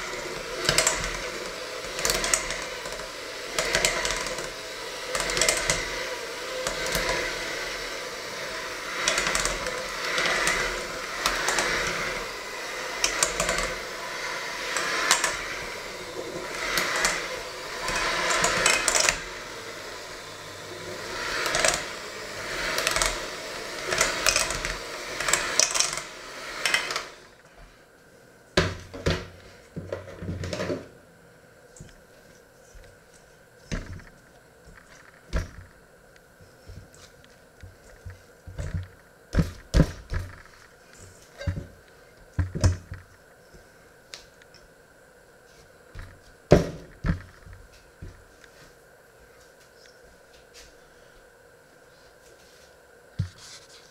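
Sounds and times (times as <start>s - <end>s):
electric hand mixer running: 0.0s - 27.5s, 32.6s - 35.8s, 36.4s - 43.8s.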